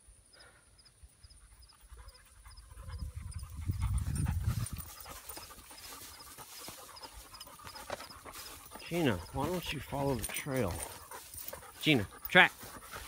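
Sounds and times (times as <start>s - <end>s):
dog panting: 1.1s - 13.0s
running through grass: 1.7s - 13.0s.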